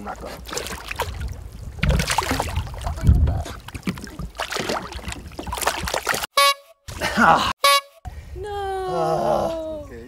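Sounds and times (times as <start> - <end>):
water against boat hull: 0.0 - 6.3
wind buffeting microphone: 0.8 - 6.0.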